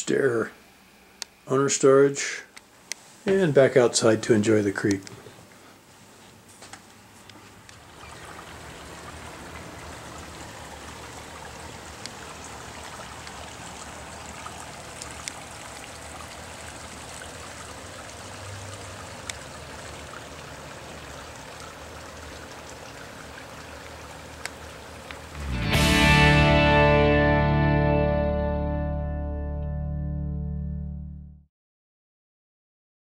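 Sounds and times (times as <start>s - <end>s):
creek water over rocks: 7.8s - 25.5s.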